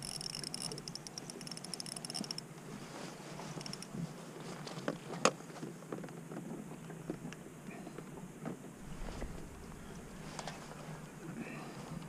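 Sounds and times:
fishing reel clicking: 0:00.0 - 0:02.5, 0:03.5 - 0:03.9.

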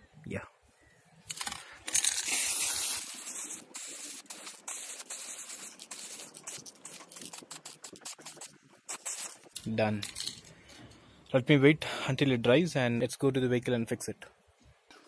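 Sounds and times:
spray paint can hissing: 0:01.4 - 0:09.6.

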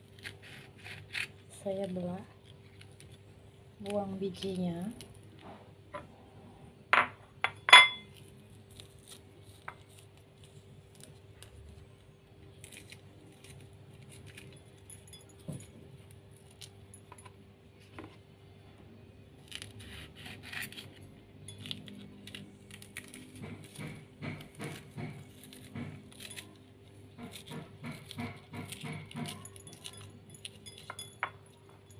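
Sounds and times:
knife clinking against ceramic bowl: 0:07.0 - 0:08.1, 0:27.3 - 0:31.9.

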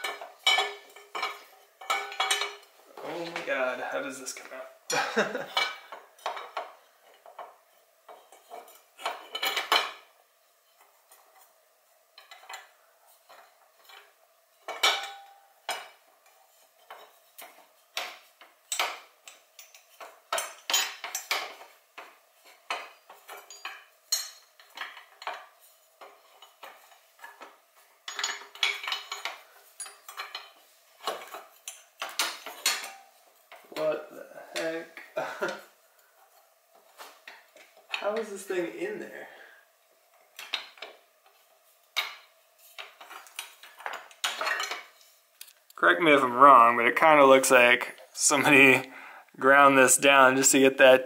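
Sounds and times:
metal tools clinking: 0:00.0 - 0:03.5, 0:13.3 - 0:17.7, 0:22.4 - 0:33.9, 0:42.0 - 0:45.0.

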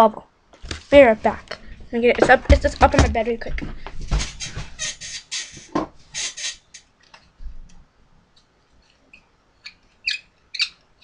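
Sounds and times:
knocks and rustles: 0:02.1 - 0:04.8
short high squeaks: 0:04.4 - 0:06.9, 0:09.1 - 0:10.8.

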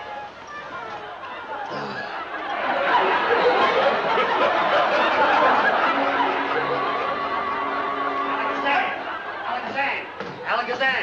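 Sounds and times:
audience laughter: 0:02.0 - 0:10.2.

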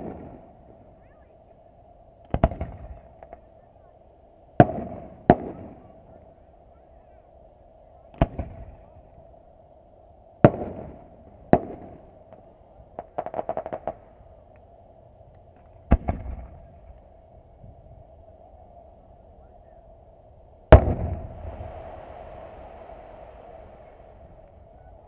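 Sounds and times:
crackling firework pops: 0:00.0 - 0:00.9, 0:02.2 - 0:03.7, 0:04.6 - 0:05.9, 0:08.1 - 0:08.8, 0:10.4 - 0:17.1, 0:20.7 - 0:24.7
distant firework booms: 0:02.3 - 0:03.5, 0:04.6 - 0:06.0, 0:08.1 - 0:08.8, 0:10.4 - 0:14.1, 0:15.8 - 0:16.9, 0:20.7 - 0:25.0.

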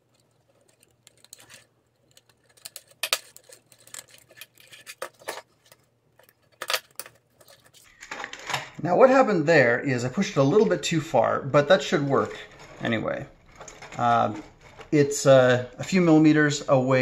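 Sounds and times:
plastic parts clicking and knocking: 0:00.0 - 0:08.8, 0:12.0 - 0:16.0.

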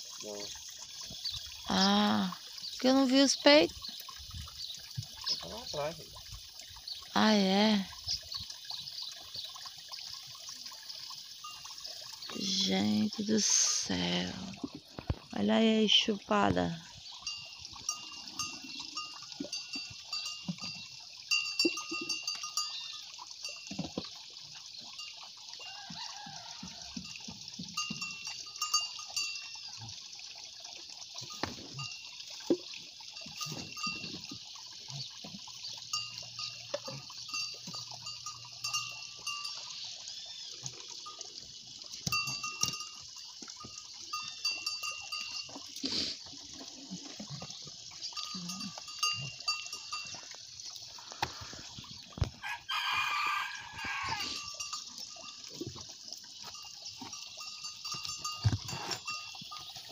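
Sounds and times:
calf slurping and bumping: 0:45.1 - 0:52.4, 0:57.9 - 0:59.9.

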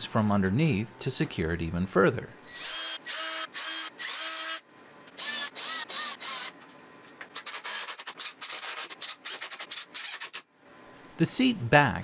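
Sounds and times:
cordless drill driving screw: 0:02.5 - 0:04.6, 0:05.2 - 0:06.6, 0:07.4 - 0:10.4.

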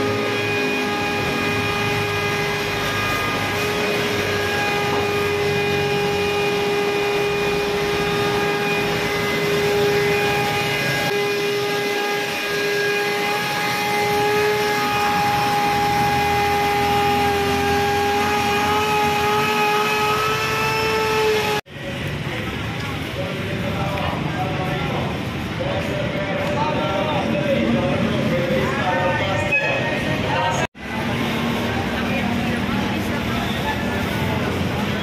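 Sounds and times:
electric motor whining: 0:00.0 - 0:21.6
rushing noise: 0:00.0 - 0:22.7.

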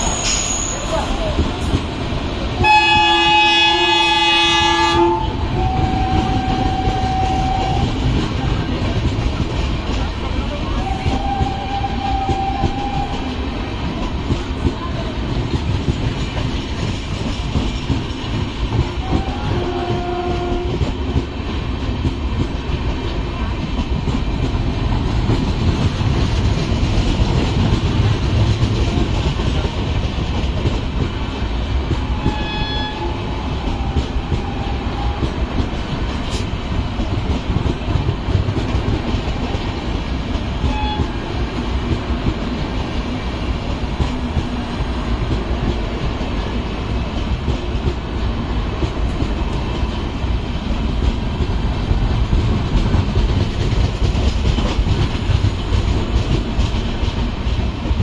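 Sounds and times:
train wheels rumbling and clattering: 0:00.0 - 0:58.0
train horn: 0:02.6 - 0:08.1, 0:10.8 - 0:13.3, 0:18.8 - 0:20.9, 0:32.0 - 0:35.4, 0:40.6 - 0:41.5.

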